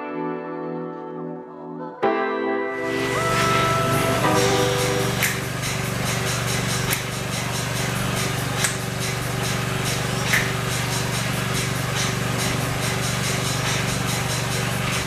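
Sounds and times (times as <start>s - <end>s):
music with deep bass beat: 3.0s - 15.0s.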